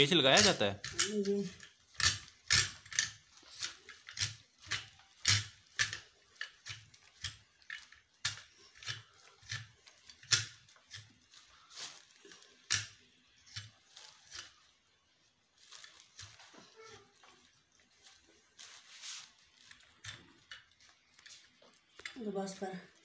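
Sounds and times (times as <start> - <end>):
metal rod clicking and knocking: 0.4 - 11.1.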